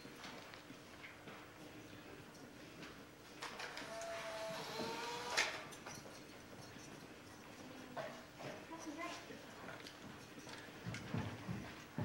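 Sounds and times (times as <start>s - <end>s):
footsteps on hard floor: 10.8s - 12.0s.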